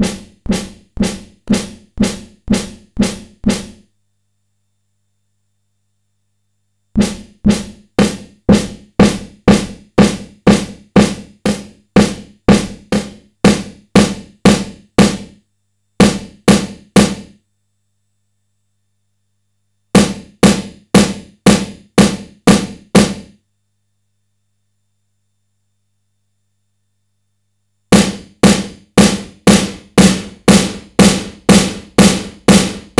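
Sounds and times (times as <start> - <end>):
electronic snare drum hits: 0.0 - 3.9, 7.0 - 15.4, 16.0 - 17.4, 20.0 - 23.4, 27.9 - 32.9.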